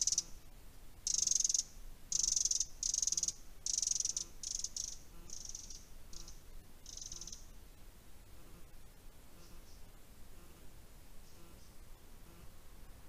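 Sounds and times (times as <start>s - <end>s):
insect chirping in buzzy bursts: 0.0s - 13.0s.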